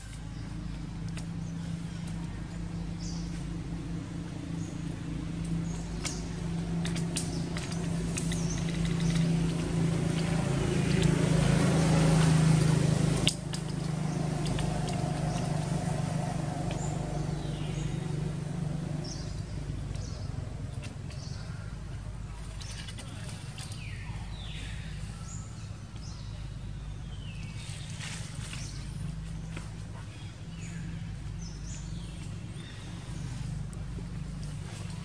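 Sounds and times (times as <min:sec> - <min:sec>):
low engine hum: 0:00.0 - 0:35.0.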